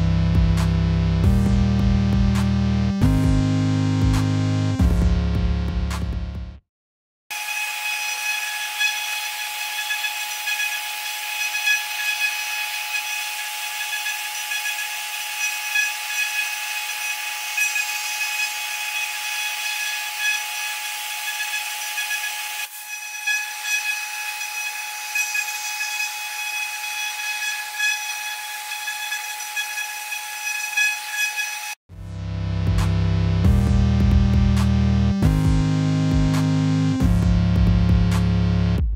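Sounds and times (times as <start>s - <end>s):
engraving spindle whine: 7.3s - 31.8s.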